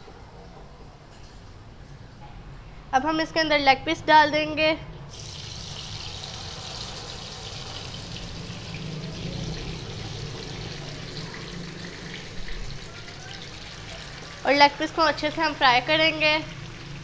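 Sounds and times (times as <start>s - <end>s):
hot oil sizzling: 5.1s - 17.0s.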